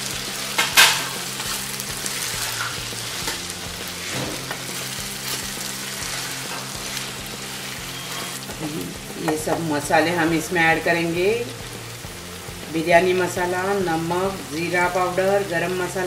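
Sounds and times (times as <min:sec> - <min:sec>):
vegetables sizzling in a frying pan: 0:00.0 - 0:16.0
spatula stirring and scraping: 0:00.5 - 0:09.6.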